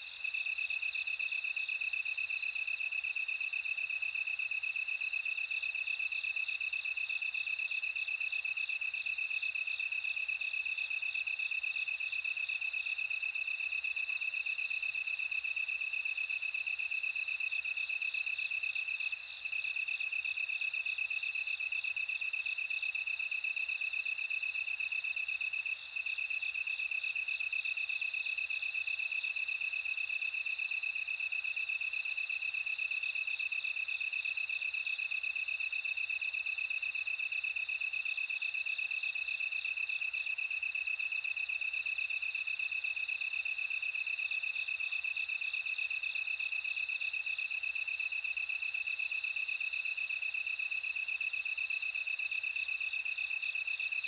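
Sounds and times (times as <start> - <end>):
high ringing cricket chirping: 0.1 - 3.1, 7.4 - 23.9, 24.7 - 54.0
pulsing cricket trill: 44.7 - 54.0.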